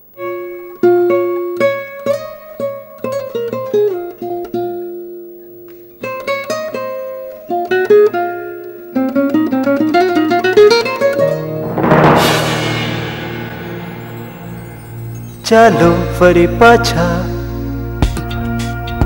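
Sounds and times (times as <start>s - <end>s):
plucked string instrument notes: 11.2s - 15.4s.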